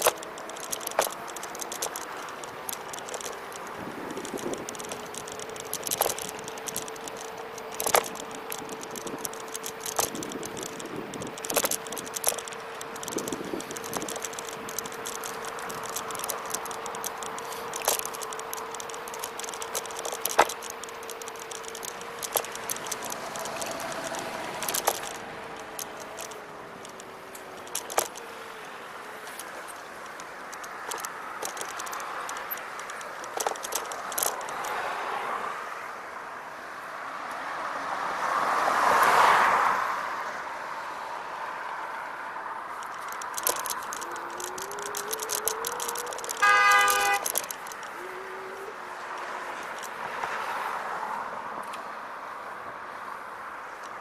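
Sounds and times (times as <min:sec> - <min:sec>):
scooter motor whine: 0:00.0 - 0:35.4, 0:42.7 - 0:50.1
scooter frame rattling and clicking: 0:00.0 - 0:36.2, 0:41.6 - 0:54.0.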